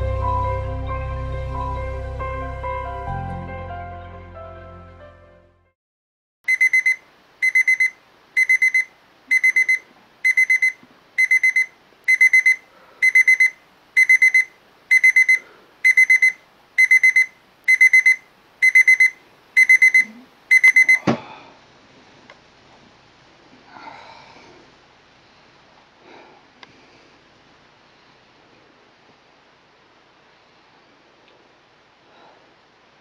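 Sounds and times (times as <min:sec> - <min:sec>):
alarm clock beeping: 0:06.5 - 0:21.1.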